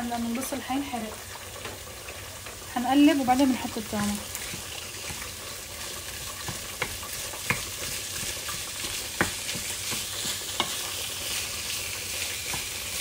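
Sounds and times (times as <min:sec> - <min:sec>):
meat sizzling in a frying pan: 0:00.0 - 0:13.0
wooden spatula knocking pan: 0:04.3 - 0:05.4, 0:06.0 - 0:10.9, 0:12.5 - 0:12.8.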